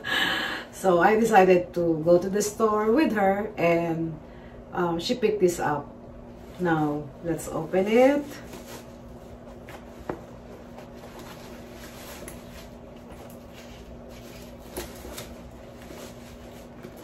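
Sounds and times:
steady low hum: 0.0s - 17.0s
cloth bag rustling: 6.4s - 17.0s.

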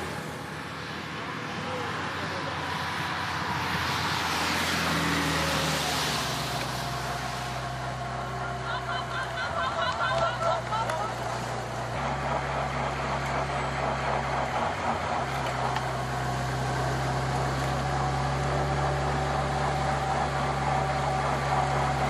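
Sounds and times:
wind and road noise: 0.0s - 22.0s
motorcycle engine running: 5.2s - 22.0s.

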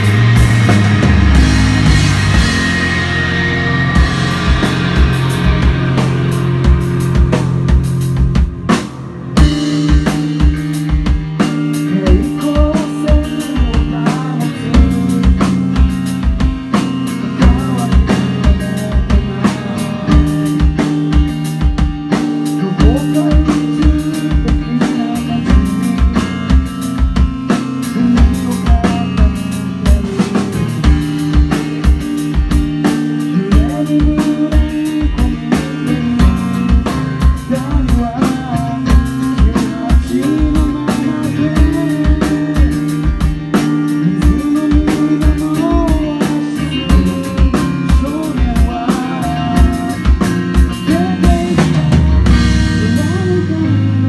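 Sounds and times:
bass guitar: 0.0s - 54.0s
drum kit kick-drum beat: 0.0s - 54.0s
electric guitar chords: 0.0s - 54.0s
sliding melodic line: 0.0s - 54.0s.

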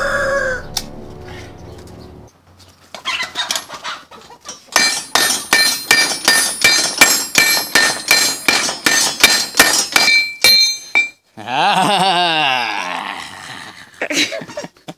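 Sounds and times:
hammer clanging on steel blade: 4.7s - 11.2s.

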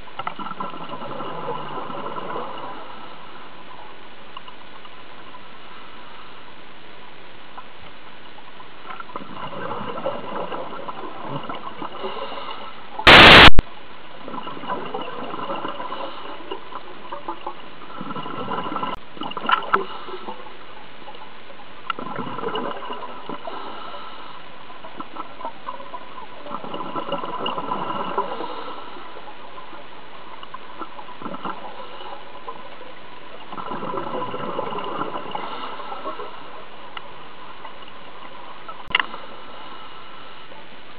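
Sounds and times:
underwater exhaled bubbles rushing: 0.4s - 3.1s, 9.1s - 12.4s, 14.2s - 20.4s, 22.0s - 23.9s, 24.9s - 29.7s, 30.8s - 32.8s, 33.4s - 36.5s.

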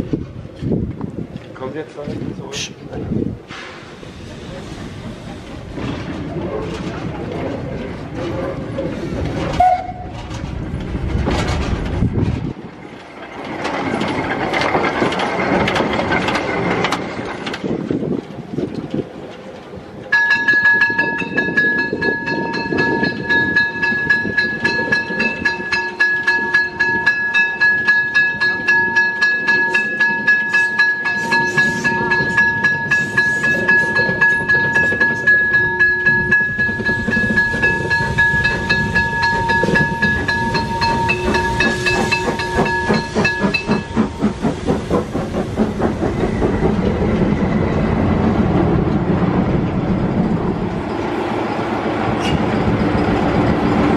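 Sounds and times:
train wheels clicking: 3.5s - 53.9s
high multi-tone squeal: 30.5s - 44.4s.

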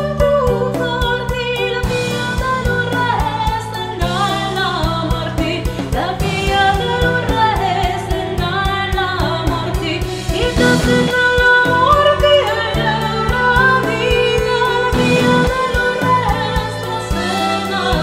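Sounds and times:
symphonic metal song: 14.9s - 18.0s.

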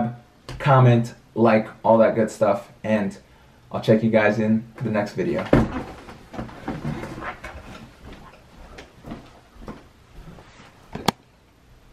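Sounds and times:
office chair knocks and shuffles: 5.3s - 9.9s
footsteps: 5.4s - 11.0s.

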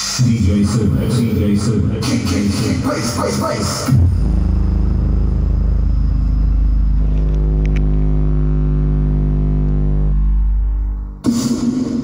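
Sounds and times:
deep bass note through woofer: 3.9s - 12.0s.

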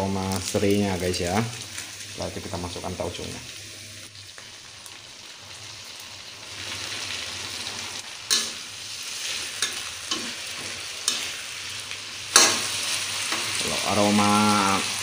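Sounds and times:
food sizzling in oil: 0.0s - 15.0s
metal spatula scraping a wok: 8.3s - 11.5s.

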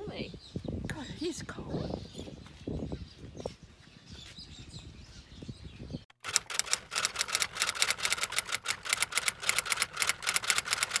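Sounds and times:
typewriter keys clacking: 6.3s - 11.0s.

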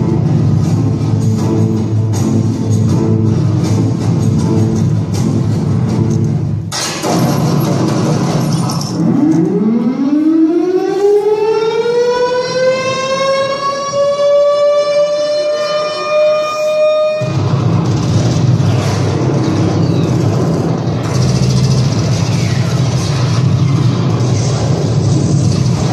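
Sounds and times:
air-raid siren rising tone: 9.0s - 17.8s.

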